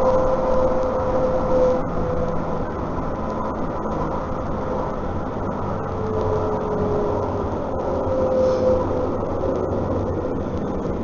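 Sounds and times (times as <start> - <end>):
tram rumbling: 0.0 - 11.0
tram whine: 0.0 - 11.0.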